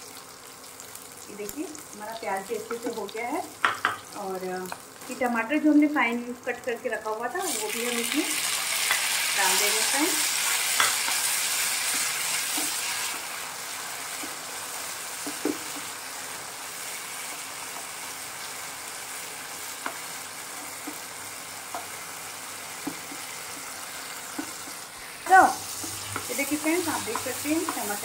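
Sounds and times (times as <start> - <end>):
tomatoes sizzling in hot oil: 0.0 - 28.0
spatula scraping and tapping pan: 10.6 - 12.8, 22.8 - 24.9, 25.7 - 28.0.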